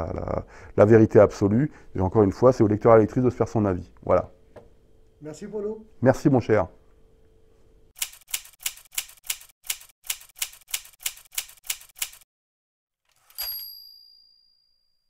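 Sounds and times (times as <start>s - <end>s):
typewriter key strikes: 8.0s - 12.2s, 13.1s - 13.6s
carriage-return bell ding: 13.1s - 15.0s.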